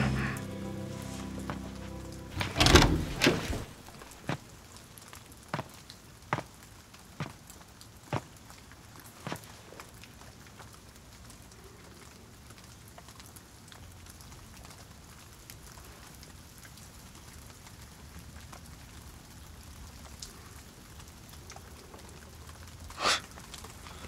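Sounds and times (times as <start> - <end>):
faint steady hiss: 0.0 - 13.1.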